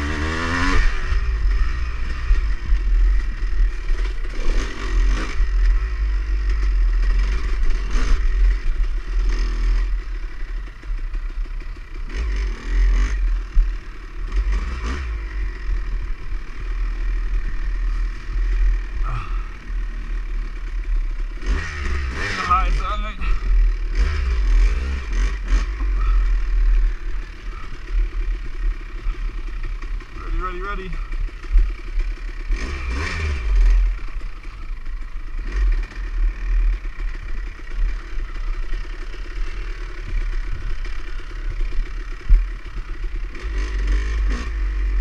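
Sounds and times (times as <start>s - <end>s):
dirt bike engine revving: 0.0s - 45.0s.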